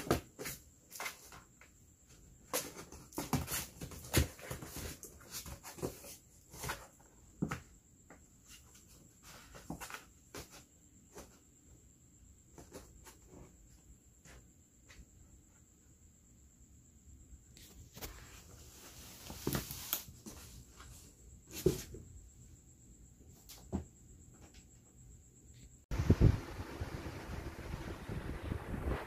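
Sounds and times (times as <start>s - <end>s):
cats scratching in cardboard box: 2.4s - 7.1s.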